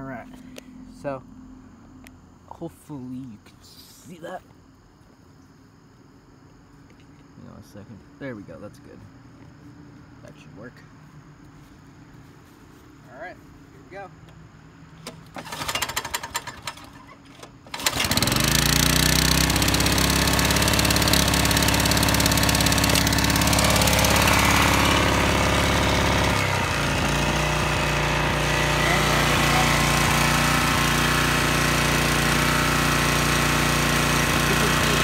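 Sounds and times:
lawnmower engine running: 15.0s - 35.0s
recoil starter pull: 15.0s - 35.0s.

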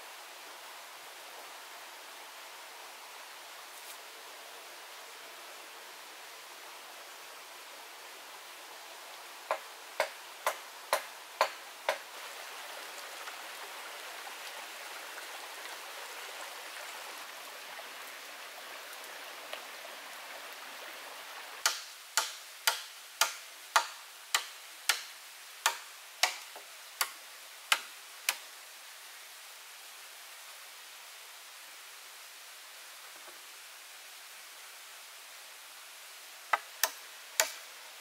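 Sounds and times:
stream water rushing: 0.0s - 38.0s
tool striking wood: 9.5s - 12.0s, 21.6s - 26.4s, 36.5s - 37.6s.

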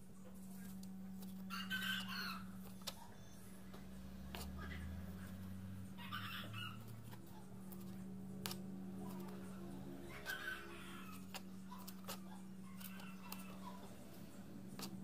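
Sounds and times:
steady low hum: 0.0s - 15.0s
chicken-like animal calls: 1.4s - 3.1s, 5.9s - 7.2s, 10.0s - 14.4s
knife cutting on plastic board: 10.2s - 15.0s.

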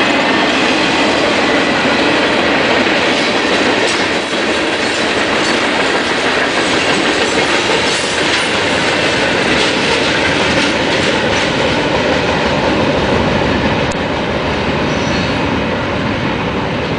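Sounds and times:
freight train wheels rumbling on rail: 0.0s - 16.9s
clattering over the track: 0.3s - 12.7s.

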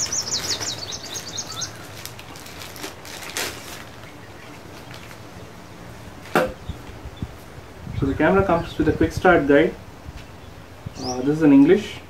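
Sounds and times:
bird trilling: 0.0s - 2.1s
paper booklets rustling: 0.0s - 5.3s
sharp tap: 6.3s - 6.6s.

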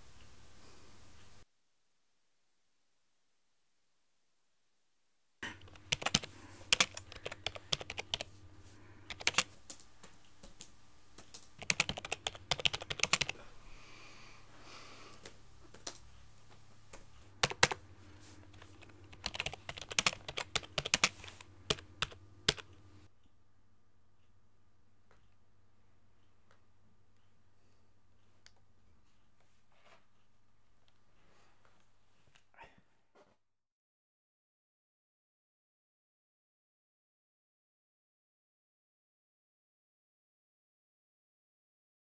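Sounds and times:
typing on a laptop keyboard: 5.4s - 8.3s, 9.0s - 13.4s, 15.7s - 16.1s, 17.4s - 17.8s, 18.5s - 22.8s.

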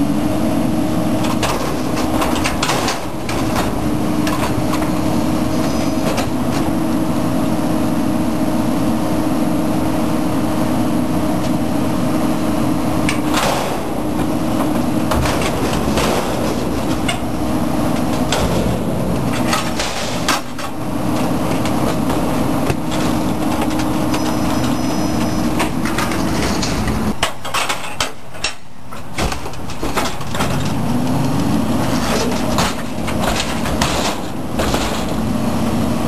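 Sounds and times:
garbage truck engine revving: 0.0s - 27.8s, 29.0s - 36.0s
metal clanks and bangs: 1.2s - 6.8s, 13.0s - 35.4s.

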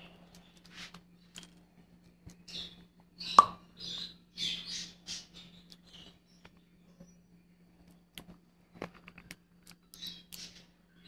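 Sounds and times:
low steady hum: 0.0s - 11.0s
lovebirds chirping: 2.2s - 8.2s, 9.9s - 11.0s.

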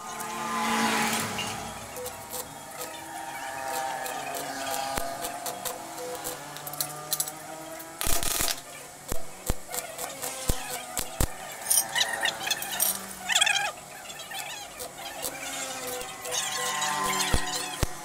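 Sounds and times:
welding arc crackle: 0.0s - 18.0s.

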